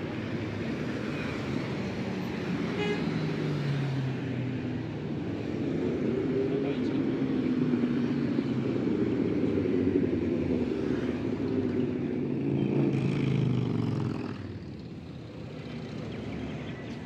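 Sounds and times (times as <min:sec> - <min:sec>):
street traffic: 0:00.0 - 0:17.0
motorcycles riding past: 0:05.9 - 0:17.0.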